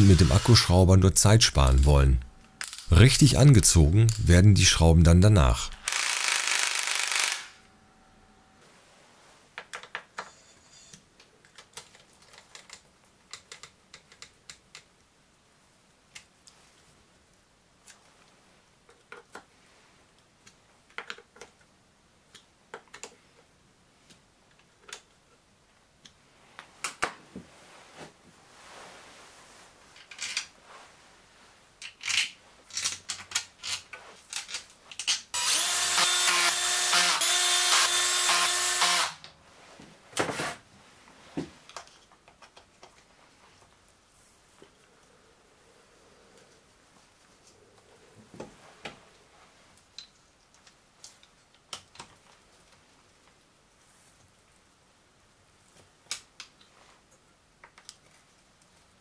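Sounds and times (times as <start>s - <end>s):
cordless drill whirring: 0.0s - 0.5s, 5.8s - 7.6s, 35.4s - 39.2s.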